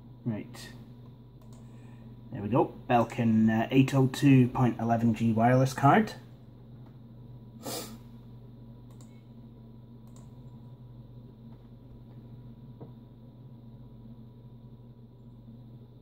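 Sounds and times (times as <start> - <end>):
desktop computer hum: 0.0 - 16.0
computer mouse clicks: 1.4 - 1.7, 8.9 - 9.2, 10.0 - 10.6.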